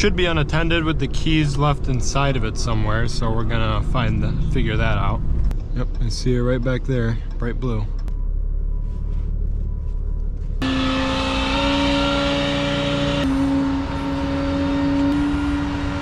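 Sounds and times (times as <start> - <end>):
truck engine rumble: 0.0 - 16.0
hydraulic bed whine: 8.0 - 16.0.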